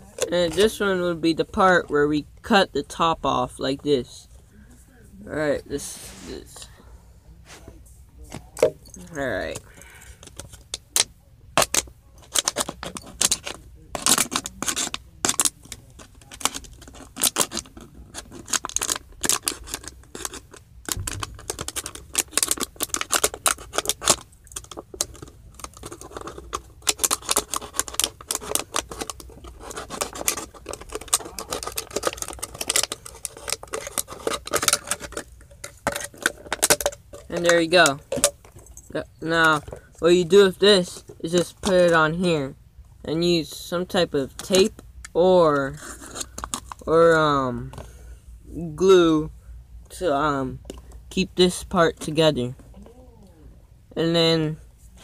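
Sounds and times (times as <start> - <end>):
plastic bottle crinkling: 8.3 - 42.0, 45.6 - 46.9.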